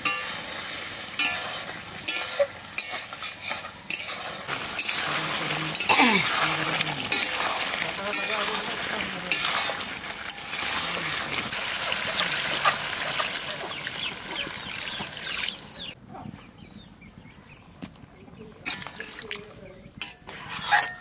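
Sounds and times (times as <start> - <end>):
curry sizzling: 0.0 - 16.0
spatula stirring: 1.2 - 13.4, 20.0 - 21.0.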